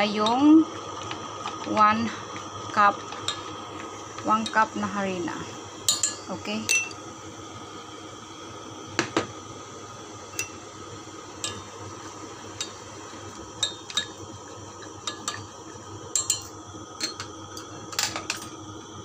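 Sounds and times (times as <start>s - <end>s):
steady low hum: 0.0s - 19.0s
utensil clinking on metal pan: 5.9s - 7.0s.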